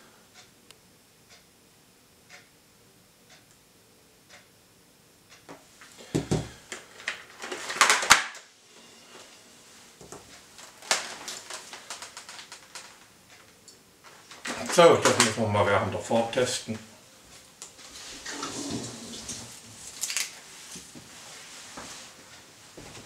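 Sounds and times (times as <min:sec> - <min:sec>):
faint ticks: 0:00.3 - 0:01.5
rustling and scraping on helmet: 0:17.8 - 0:23.0.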